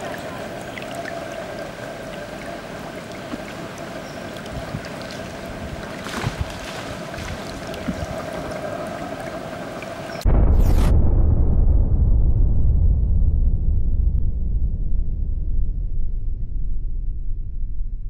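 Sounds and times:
monkeys splashing in water: 0:00.0 - 0:09.8
constant high hum: 0:00.0 - 0:10.2
river ambience: 0:00.0 - 0:10.2
deep boom with falling whoosh: 0:10.2 - 0:18.0.

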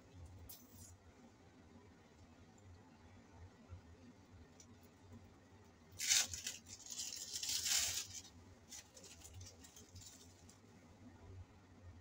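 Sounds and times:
packaging crinkling: 0:06.0 - 0:10.6
packaging ripping: 0:06.0 - 0:10.6.

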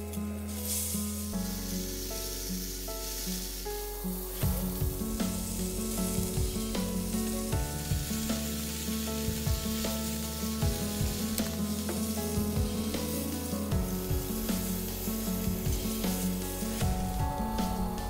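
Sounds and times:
peppers sizzling in a pan: 0:00.0 - 0:18.0
background music with drum beat: 0:04.4 - 0:18.0.

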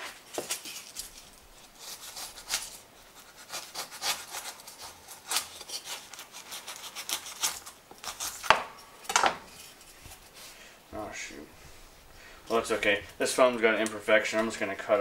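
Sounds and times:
knife sawing through foam: 0:01.6 - 0:08.4.

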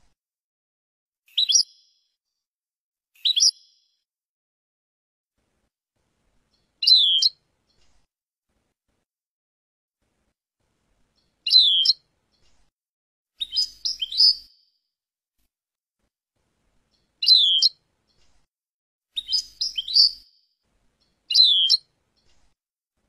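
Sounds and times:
goldfinch chirping: 0:01.3 - 0:01.9, 0:03.2 - 0:03.8, 0:06.6 - 0:07.4, 0:11.2 - 0:12.0, 0:13.4 - 0:14.5, 0:16.9 - 0:17.8, 0:19.2 - 0:20.3, 0:21.0 - 0:22.3.

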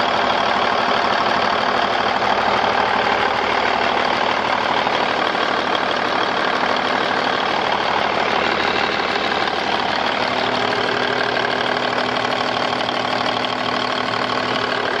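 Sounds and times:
diesel truck engine idling: 0:00.0 - 0:15.0.

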